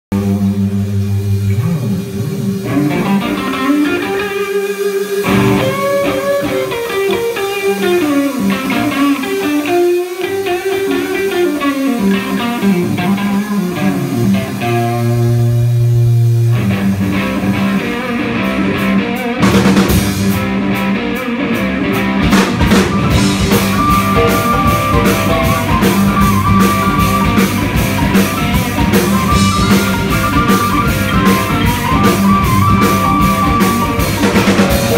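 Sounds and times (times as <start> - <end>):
sustained bass notes: 0.1 - 3.8, 5.2 - 6.7, 12.3 - 21.0, 21.6 - 34.9
drum kit with cymbals: 0.1 - 34.9
electric guitar melodic lines: 0.2 - 34.9.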